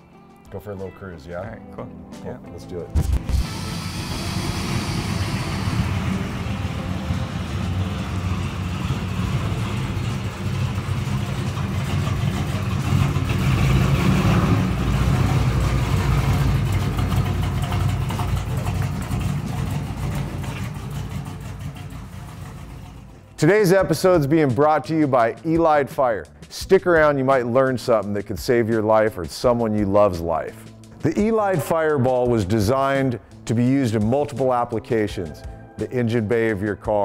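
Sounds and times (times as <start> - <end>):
pickup engine low rumble: 3.2 - 23.4.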